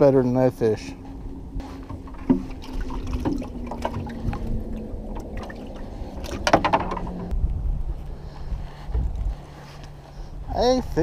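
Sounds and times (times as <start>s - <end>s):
steady low hum: 0.0s - 11.0s
dip net splashing through water: 1.8s - 6.6s.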